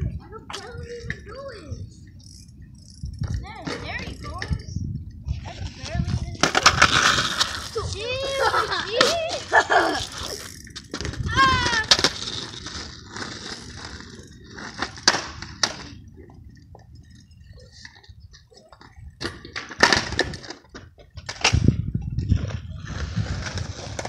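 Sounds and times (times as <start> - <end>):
skateboard wheels rolling: 0.0 - 24.0
skateboard clacking on asphalt: 5.9 - 24.0
child calling out: 11.2 - 12.0.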